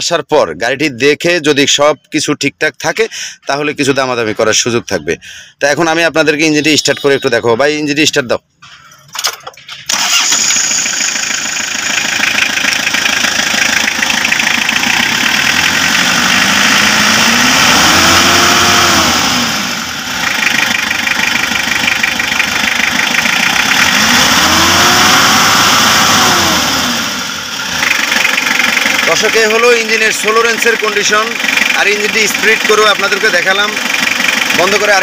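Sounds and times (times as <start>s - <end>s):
diesel engine starting: 8.6s - 35.0s
diesel engine idling and revving: 9.7s - 35.0s.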